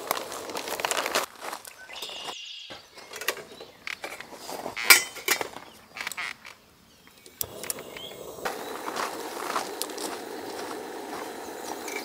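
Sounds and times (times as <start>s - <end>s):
steady hiss: 7.2s - 12.0s.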